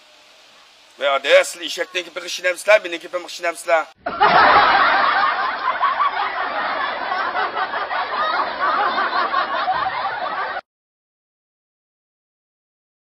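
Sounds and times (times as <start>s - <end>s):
laugh track: 4.0s - 10.6s.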